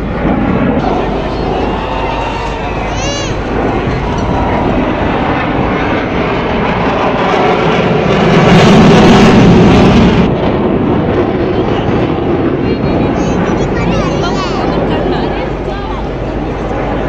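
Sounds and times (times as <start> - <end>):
fighter jet engine rumble: 0.0 - 17.0.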